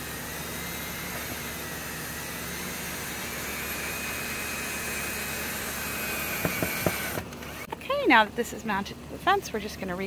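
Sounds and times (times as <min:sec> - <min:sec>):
cordless drill driving a screw: 0:00.0 - 0:07.8.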